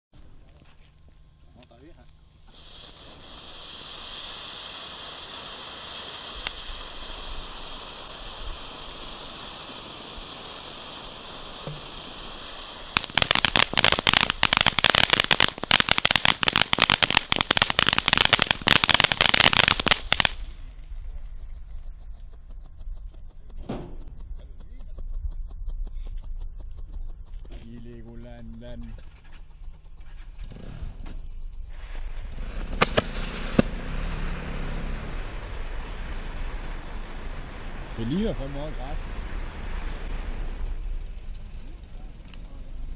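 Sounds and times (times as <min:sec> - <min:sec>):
firework hissing: 0:01.5 - 0:20.9, 0:31.6 - 0:42.9
firework crackling pops: 0:01.5 - 0:21.5, 0:30.4 - 0:42.8.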